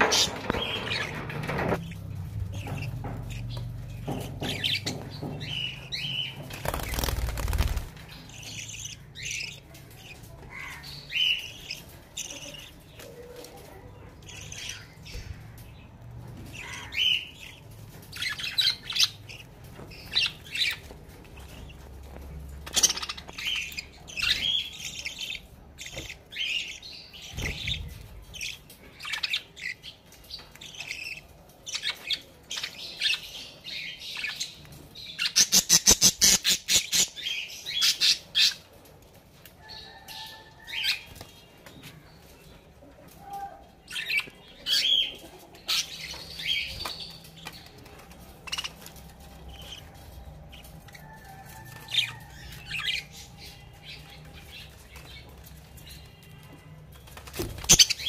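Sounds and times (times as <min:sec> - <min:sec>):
budgerigars chirping: 0:48.5 - 0:55.2.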